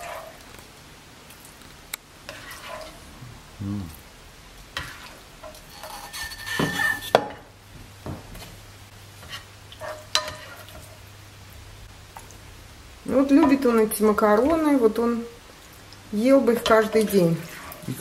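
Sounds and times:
spoon scraping a frying pan: 0.0s - 0.4s, 2.3s - 3.0s, 4.7s - 7.5s, 9.2s - 11.1s, 13.3s - 14.7s, 16.4s - 18.0s.

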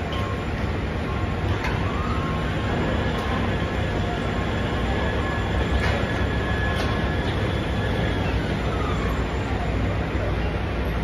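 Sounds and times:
crane engine running: 0.0s - 11.0s
thin steady whine: 0.0s - 11.0s.

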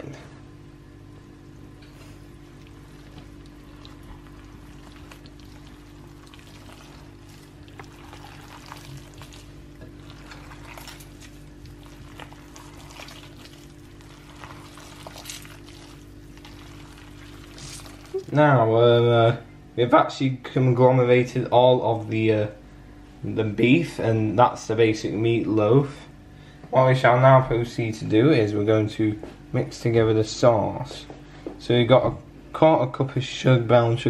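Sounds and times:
steady low hum: 0.0s - 34.0s
hands squelching wet minced meat: 1.9s - 18.4s.

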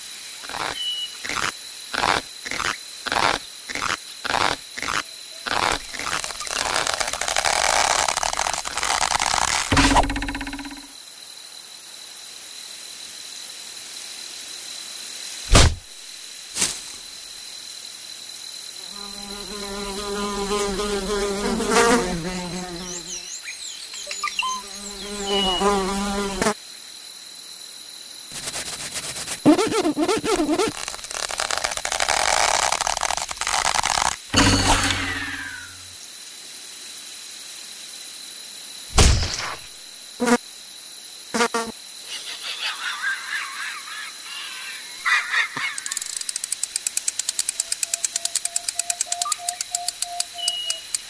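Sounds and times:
flying insect buzzing: 0.4s - 10.9s, 18.8s - 23.3s, 24.4s - 26.6s, 28.3s - 35.9s, 40.2s - 40.4s, 41.3s - 41.8s.

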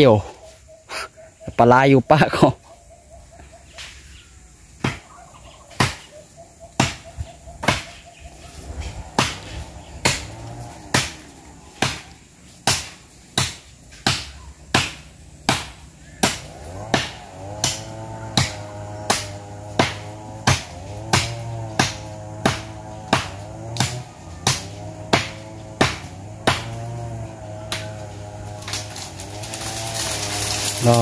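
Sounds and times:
blade chopping woody stem: 5.8s - 6.1s, 7.6s - 8.0s, 9.0s - 26.9s, 27.6s - 30.9s.

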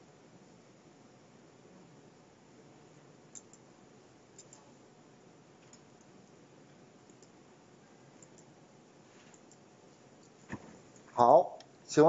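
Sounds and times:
faint computer mouse clicks: 3.3s - 3.6s, 4.4s - 4.6s, 7.1s - 7.4s, 8.2s - 8.5s.

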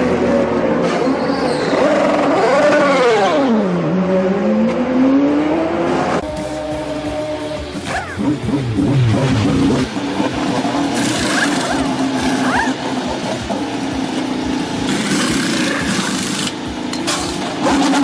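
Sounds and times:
race car engine idling: 6.2s - 18.0s
pneumatic wheel guns rattling: 10.3s - 18.0s.

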